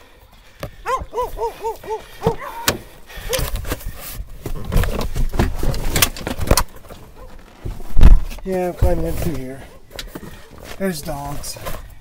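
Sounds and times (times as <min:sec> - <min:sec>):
heavy handling noise: 0:00.5 - 0:12.0
dog barking: 0:00.8 - 0:02.7, 0:07.1 - 0:07.4.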